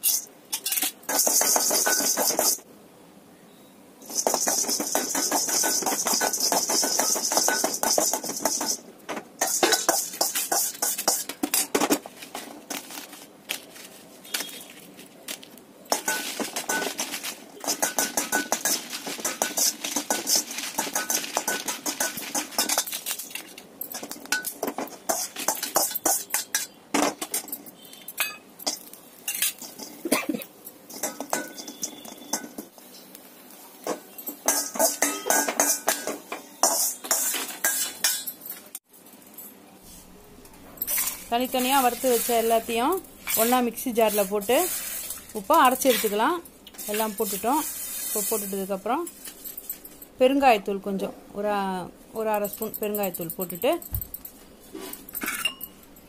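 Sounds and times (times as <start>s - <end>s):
dry pieces rattling in pan: 0.0s - 2.6s, 4.0s - 32.7s, 33.9s - 38.4s, 40.8s - 50.2s, 52.2s - 56.0s
metal ladle scraping steel pan: 40.8s - 48.6s.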